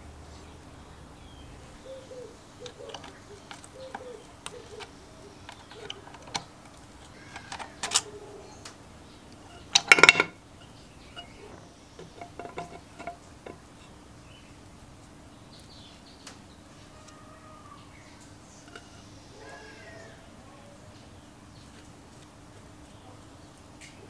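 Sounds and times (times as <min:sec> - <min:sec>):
metal clatter: 0:02.6 - 0:08.2, 0:09.4 - 0:13.9, 0:18.7 - 0:19.1
metal engine parts clinking: 0:02.6 - 0:08.3, 0:09.3 - 0:13.9, 0:18.6 - 0:19.1.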